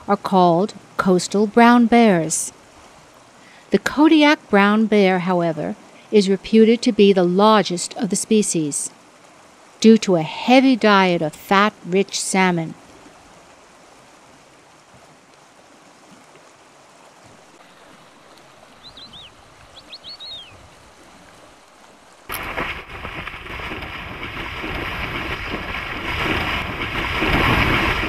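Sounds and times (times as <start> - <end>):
faint water ambience: 0.0 - 28.0
heavy splashing in water: 22.3 - 28.0.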